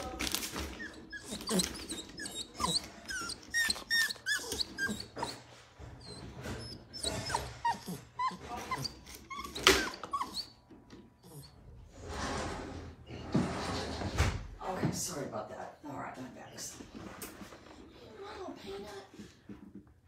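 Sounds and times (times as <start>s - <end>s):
dog whining and yelping: 0.6s - 11.7s.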